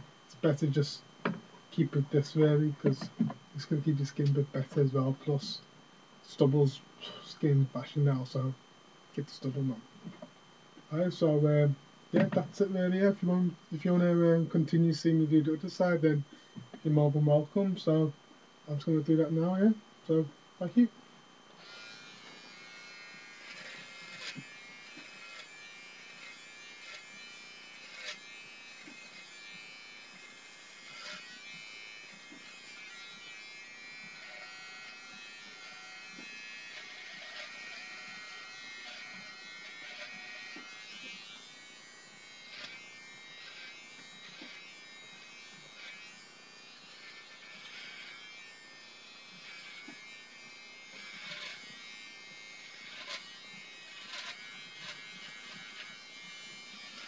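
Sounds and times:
beard trimmer buzzing: 0.0s - 5.6s, 11.3s - 18.1s, 21.5s - 57.0s
light clicks of trimmer on skin: 21.6s - 57.0s.

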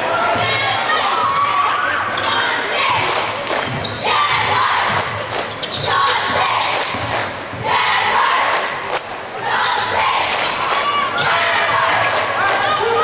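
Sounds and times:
crowd noise: 0.0s - 13.0s
basketball bouncing on gym floor: 3.6s - 7.8s.

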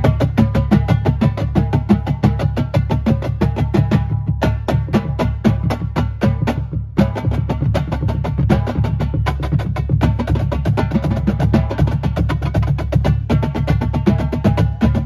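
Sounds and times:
snare drums: 0.0s - 15.0s
tenor drums: 0.0s - 15.0s.

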